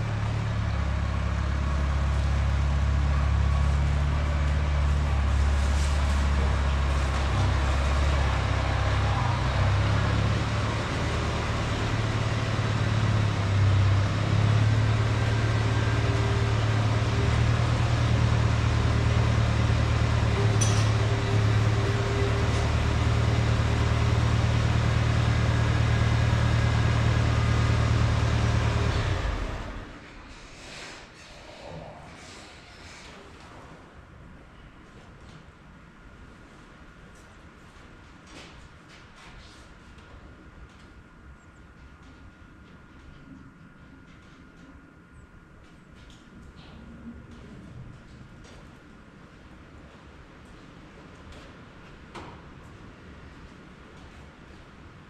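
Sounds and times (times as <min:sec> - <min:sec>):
tractor engine running: 0:00.0 - 0:30.0.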